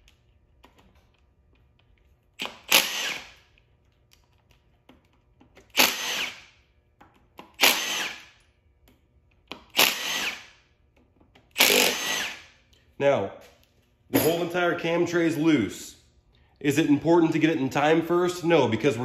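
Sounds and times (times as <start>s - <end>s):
cordless power tool spinning bolts: 2.4s - 3.4s, 5.6s - 6.5s, 7.6s - 8.3s, 9.7s - 10.5s, 11.5s - 12.5s.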